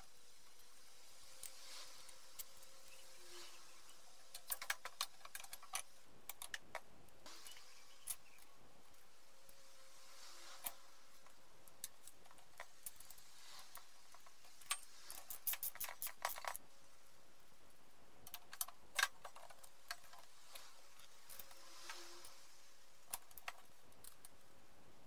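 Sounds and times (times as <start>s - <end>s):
small metal clicks and taps: 4.3s - 6.9s.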